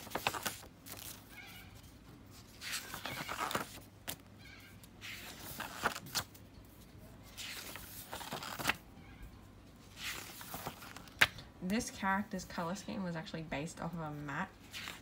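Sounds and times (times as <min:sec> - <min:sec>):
paper pages turning: 0:00.0 - 0:08.8, 0:09.8 - 0:11.4, 0:14.6 - 0:15.0.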